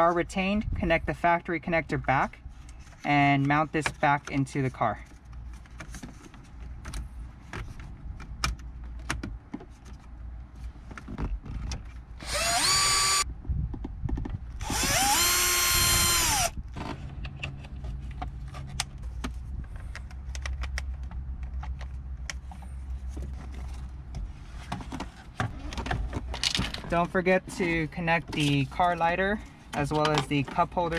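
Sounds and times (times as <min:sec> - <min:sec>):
drill motor whine: 0:12.2 - 0:13.2, 0:14.6 - 0:16.6.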